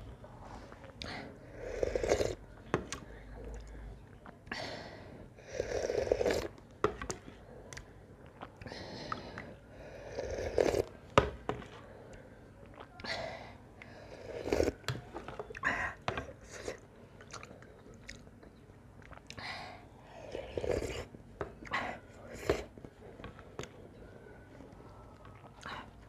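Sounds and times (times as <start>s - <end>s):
slurping soup from spoon: 1.5s - 2.4s, 5.5s - 6.6s, 9.1s - 11.0s, 13.9s - 14.9s, 20.2s - 21.2s
chewing: 6.2s - 9.6s, 16.3s - 19.4s, 24.7s - 26.0s.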